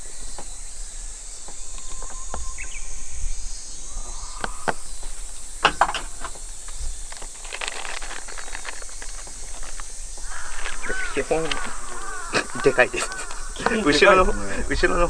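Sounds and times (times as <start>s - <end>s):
high-pitched insect chirring: 0.0s - 15.0s
plastic bag crinkling: 6.7s - 12.3s.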